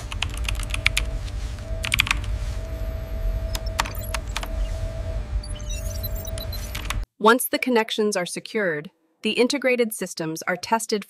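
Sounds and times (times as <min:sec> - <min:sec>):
low hum: 0:00.0 - 0:07.0
keyboard typing: 0:00.1 - 0:01.1, 0:01.8 - 0:02.3, 0:03.4 - 0:04.7, 0:05.5 - 0:07.0.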